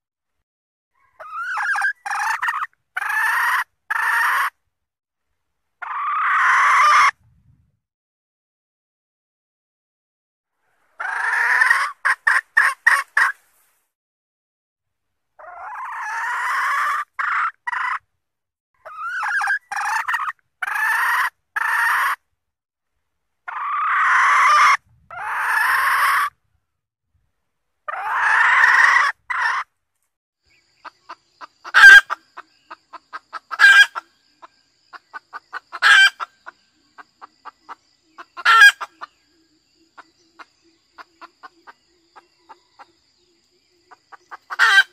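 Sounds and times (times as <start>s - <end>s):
junglefowl hens cackling: 0.9s - 4.6s, 5.8s - 7.2s, 10.9s - 13.4s, 15.4s - 18.1s, 18.8s - 22.2s, 23.5s - 26.4s, 27.9s - 29.7s, 30.8s - 44.9s.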